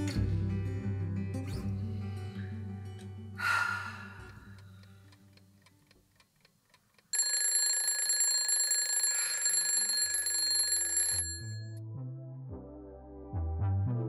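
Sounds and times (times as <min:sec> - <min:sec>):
faint clock ticking: 0:04.2 - 0:10.2
alarm clock bell ringing: 0:07.1 - 0:11.7.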